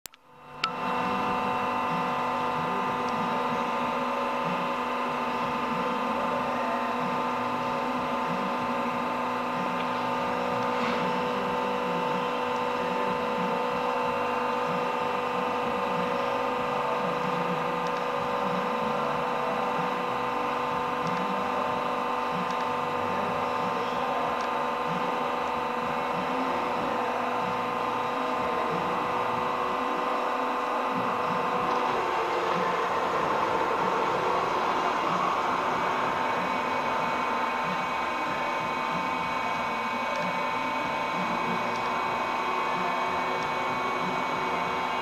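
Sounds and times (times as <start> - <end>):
mixer motor hum: 0.1 - 45.0.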